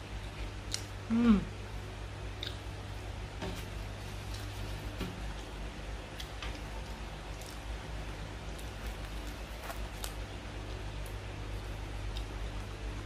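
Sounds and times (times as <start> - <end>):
low hum and hiss: 0.0 - 13.0
soft eating and handling clicks: 0.2 - 1.0, 2.4 - 2.7, 3.5 - 12.8.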